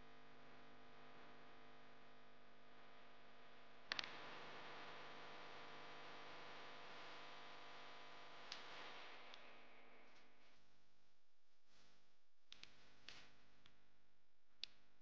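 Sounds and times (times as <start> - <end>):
small clicks: 3.9 - 4.1.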